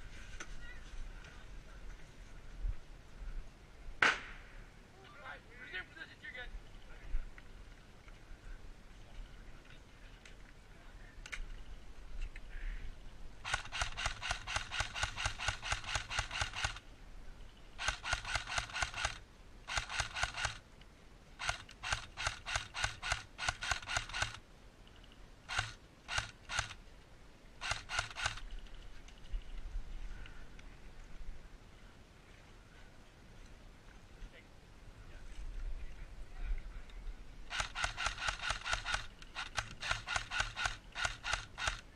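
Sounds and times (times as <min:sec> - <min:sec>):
airsoft gun firing: 0:04.0 - 0:04.6, 0:13.4 - 0:16.8, 0:37.5 - 0:41.8.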